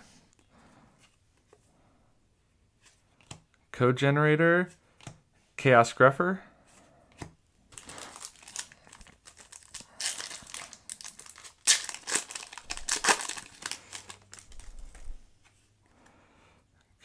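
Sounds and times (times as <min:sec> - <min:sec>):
foil wrapper crinkling: 0:07.7 - 0:15.1
foil wrapper tearing: 0:07.8 - 0:14.8.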